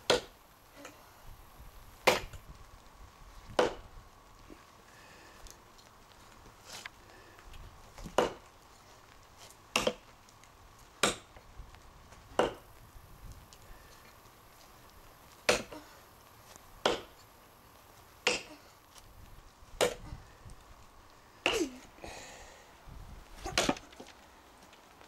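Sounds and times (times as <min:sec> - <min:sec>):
tomahawk chopping into log: 0:02.0 - 0:02.4, 0:03.6 - 0:03.8, 0:08.0 - 0:08.4, 0:09.7 - 0:10.0, 0:11.0 - 0:11.3, 0:12.4 - 0:12.6, 0:15.5 - 0:15.8, 0:16.8 - 0:17.2, 0:19.8 - 0:20.0, 0:23.4 - 0:23.9.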